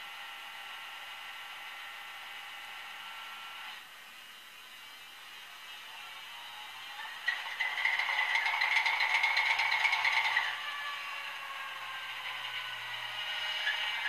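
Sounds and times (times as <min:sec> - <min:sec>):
tinny locomotive sound from speaker: 0:05.4 - 0:14.0.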